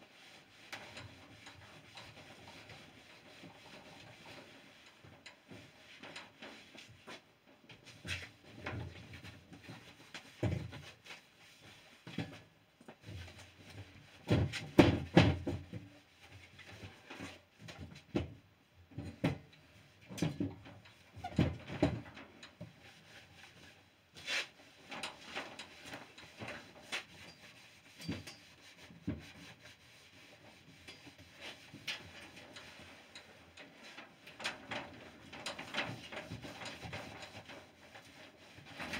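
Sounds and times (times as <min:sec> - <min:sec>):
cloth rubbing on wood: 0:22.8 - 0:34.2, 0:35.9 - 0:38.9.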